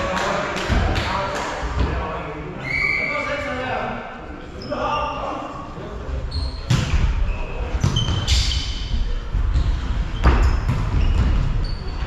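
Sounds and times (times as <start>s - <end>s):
shoes squeaking on wooden floor: 9.5s - 12.0s.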